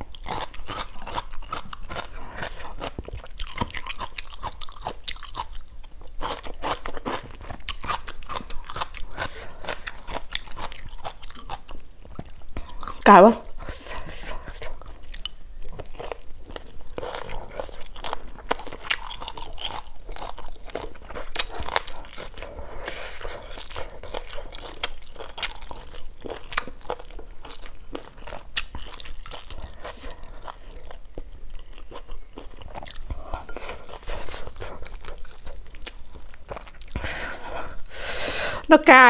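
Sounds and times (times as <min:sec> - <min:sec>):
person chewing crunchy food: 0:00.0 - 0:38.4.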